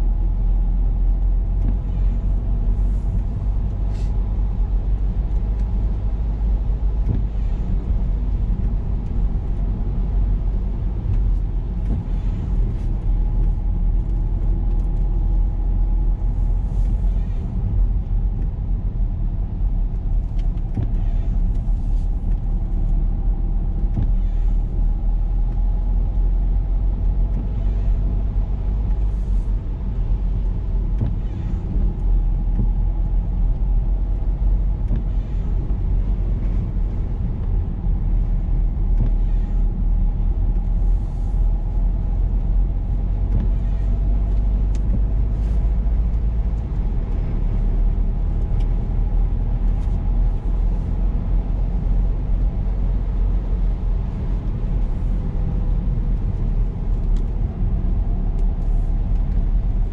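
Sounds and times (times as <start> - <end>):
car driving road rumble: 0.0 - 59.9
faint engine tone: 23.2 - 25.6, 27.3 - 37.4, 38.1 - 46.1.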